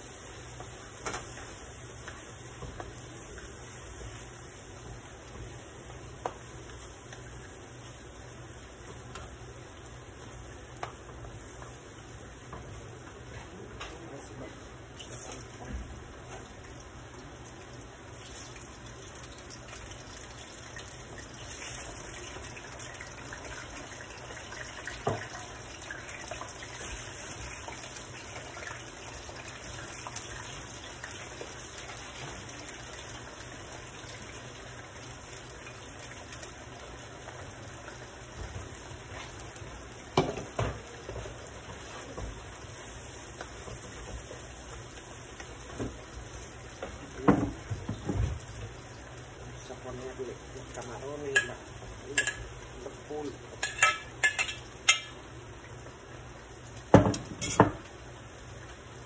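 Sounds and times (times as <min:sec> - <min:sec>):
plantain slices frying in oil: 0:00.0 - 0:59.0
sofrito cooking in pan: 0:00.0 - 0:59.0
kitchenware knocks: 0:56.9 - 0:57.8.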